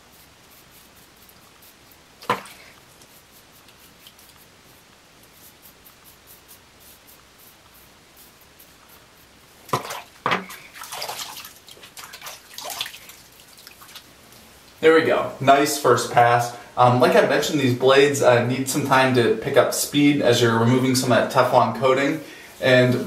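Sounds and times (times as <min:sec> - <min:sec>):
razor scraping stubble: 0:00.0 - 0:09.5
water splashing in sink: 0:02.2 - 0:02.7, 0:09.7 - 0:14.1.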